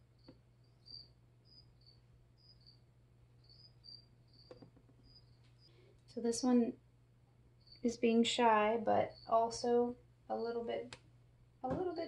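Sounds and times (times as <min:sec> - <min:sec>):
low steady hum: 0:00.0 - 0:12.0
cricket chirping: 0:00.2 - 0:05.8, 0:07.6 - 0:08.0, 0:09.0 - 0:09.5.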